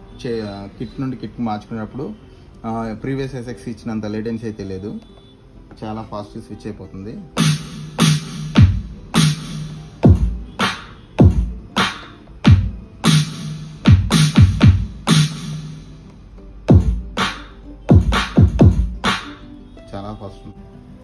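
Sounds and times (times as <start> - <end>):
electronic drum kicks: 7.4 - 15.6, 16.7 - 19.3
electronic snare hits: 7.4 - 15.8, 16.7 - 19.4.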